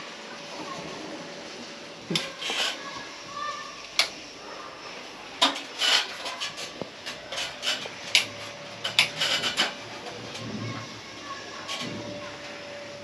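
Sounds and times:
rustling and scraping: 0:02.1 - 0:03.7, 0:05.4 - 0:12.4.

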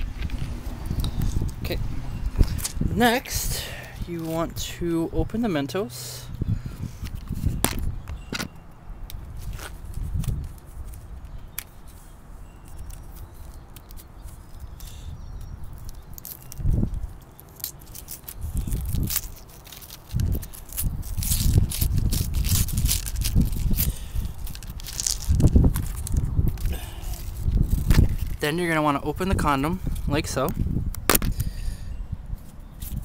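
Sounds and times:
wind rumbling on microphone: 0:00.0 - 0:05.5, 0:06.2 - 0:17.2, 0:17.9 - 0:33.0
mints clicking on concrete: 0:12.7 - 0:28.4
wrapper crinkling and tearing: 0:15.7 - 0:28.4.

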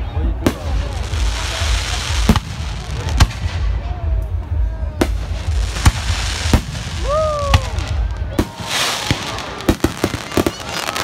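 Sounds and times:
low rumble: 0:00.0 - 0:08.4
fireworks crackling: 0:00.0 - 0:11.0
fireworks bangs: 0:00.3 - 0:11.0.

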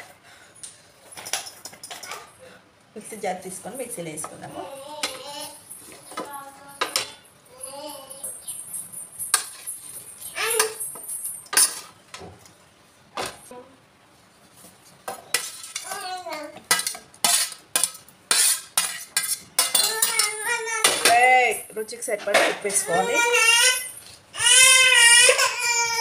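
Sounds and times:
spatula scraping steel plate: 0:16.7 - 0:20.2.

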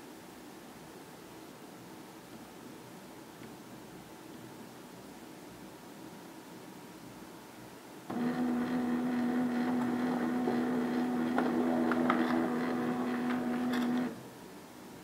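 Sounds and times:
laser printer motor whine: 0:08.1 - 0:14.2
paper feed clicks: 0:08.1 - 0:14.2.

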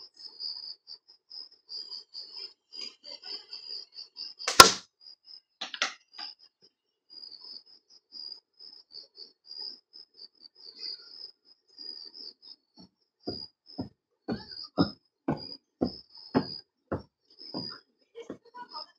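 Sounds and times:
insects chirping: 0:00.0 - 0:18.9
nut striking target with sharp crack: 0:04.5 - 0:04.8, 0:05.6 - 0:06.0
nut bouncing and clattering: 0:05.6 - 0:06.0.

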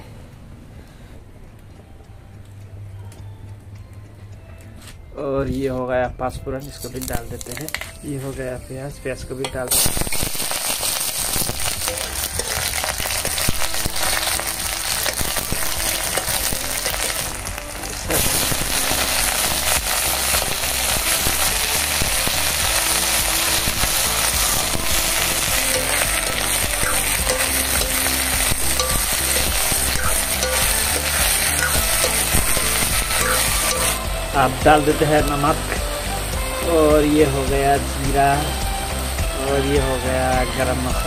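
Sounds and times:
vegetables sizzling in hot oil: 0:06.6 - 0:08.3, 0:09.5 - 0:41.0
metal spatula scraping pan: 0:24.2 - 0:34.0.

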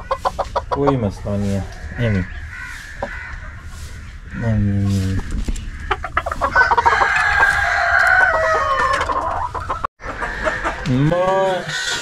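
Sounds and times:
hens clucking: 0:00.0 - 0:12.0
rooster crowing: 0:06.4 - 0:09.4.

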